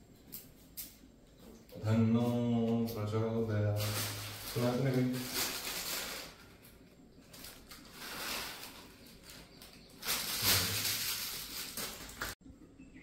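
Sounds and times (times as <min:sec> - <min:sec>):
plastic packet crinkling: 0:03.7 - 0:12.4.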